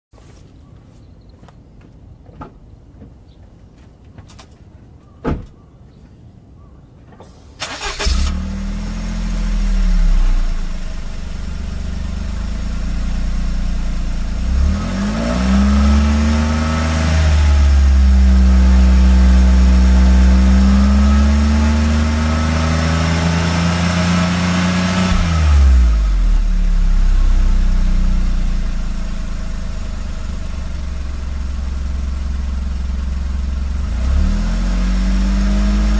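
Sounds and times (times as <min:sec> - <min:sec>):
car engine starting and revving: 0:07.2 - 0:35.9.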